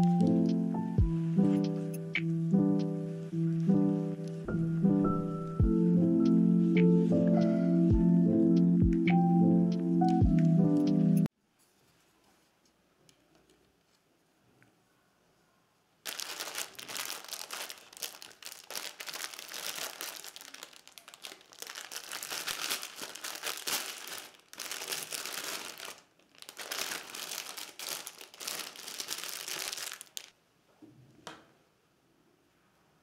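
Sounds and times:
plastic wrapping crinkling: 0:00.0 - 0:02.0, 0:02.9 - 0:04.5, 0:16.0 - 0:30.4.

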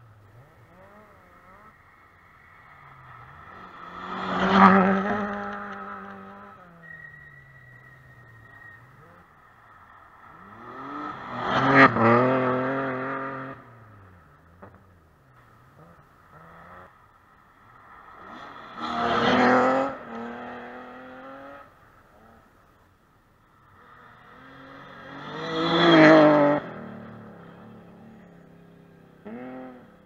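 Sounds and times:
rally car engine revving: 0:02.8 - 0:09.3, 0:10.3 - 0:14.8, 0:18.2 - 0:22.4, 0:23.8 - 0:28.3.

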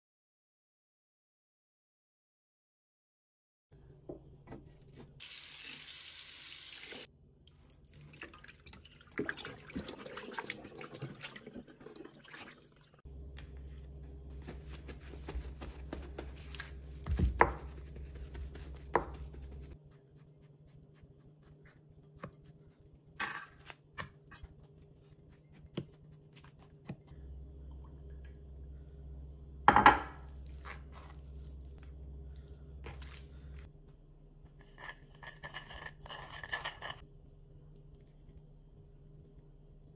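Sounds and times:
kitchen tap running: 0:05.2 - 0:07.1
low steady hum: 0:13.0 - 0:39.9.

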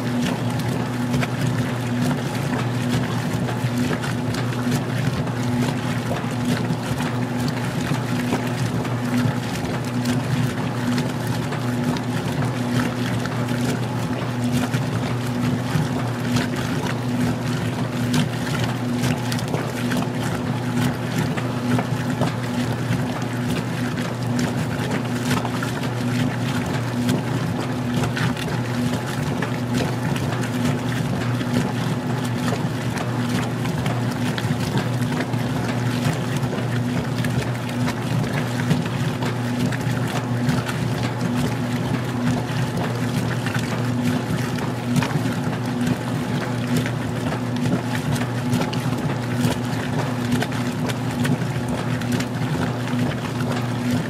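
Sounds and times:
washing machine motor humming: 0:00.0 - 0:54.0
water and clothes sloshing: 0:00.0 - 0:54.0.

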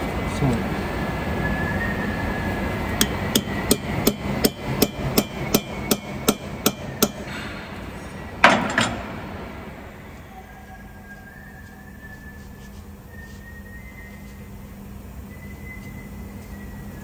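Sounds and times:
hammer tapping metal bit: 0:03.0 - 0:07.6
loud hammer knock: 0:03.0 - 0:10.0.

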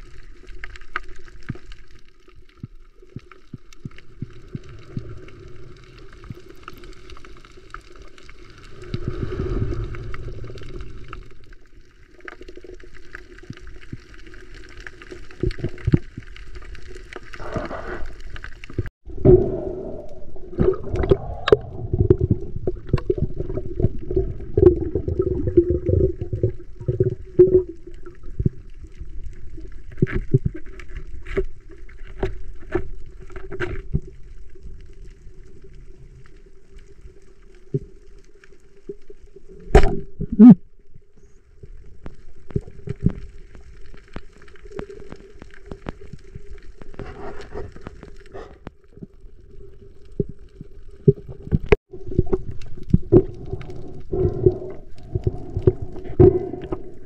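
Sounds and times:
water gurgling and bubbles: 0:00.0 - 0:40.6, 0:41.7 - 0:57.0
steady underwater hum: 0:16.0 - 0:57.0.

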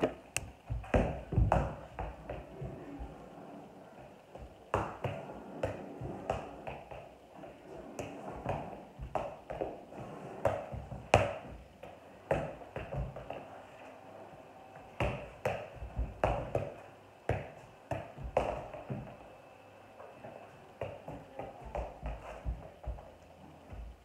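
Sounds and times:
soccer ball thuds: 0:00.0 - 0:03.2, 0:04.3 - 0:07.0, 0:08.0 - 0:13.4, 0:14.8 - 0:19.2, 0:20.8 - 0:24.0.

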